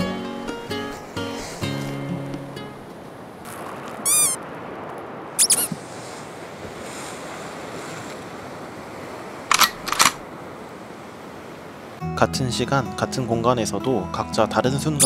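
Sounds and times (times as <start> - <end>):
surf washing against rocks: 0.0 - 12.0
short high-pitched chirps: 5.4 - 5.7.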